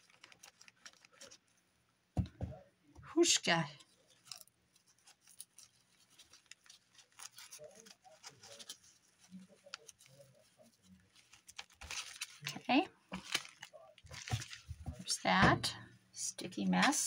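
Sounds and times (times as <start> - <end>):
fingers handling paper: 0.0 - 1.7, 3.8 - 15.3.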